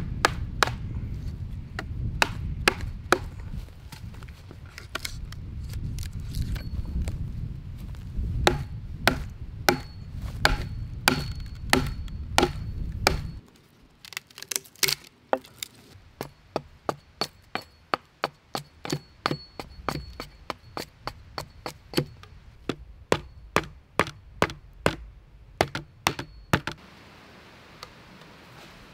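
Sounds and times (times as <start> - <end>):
axe chopping wood: 0.1 - 0.9, 1.8 - 3.4, 8.4 - 13.4, 14.4 - 26.8.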